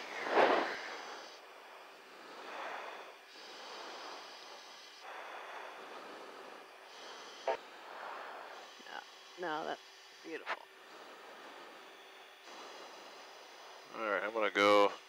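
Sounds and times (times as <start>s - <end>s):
cockpit noise: 0.0s - 1.4s
breathing into oxygen mask: 0.0s - 15.0s.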